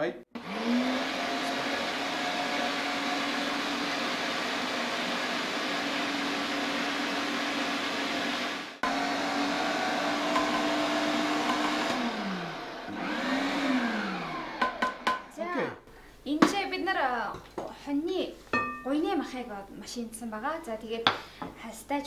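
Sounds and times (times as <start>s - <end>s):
meat mincer motor whirring: 0.4s - 15.3s.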